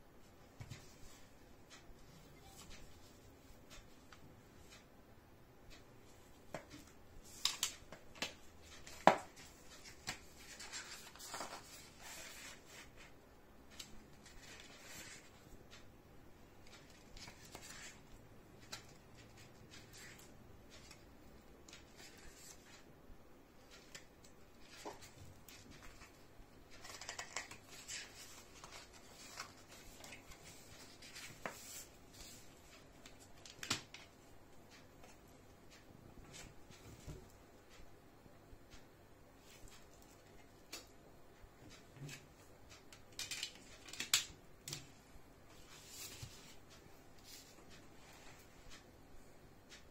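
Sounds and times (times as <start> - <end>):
cardboard and paper rustling: 7.3 - 13.1.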